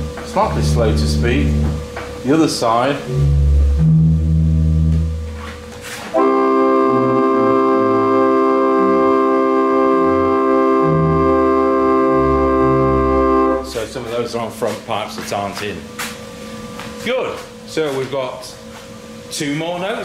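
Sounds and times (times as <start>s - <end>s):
pipe organ chord held: 0.0s - 1.9s, 3.0s - 14.1s
pipe organ bass notes: 0.0s - 14.6s.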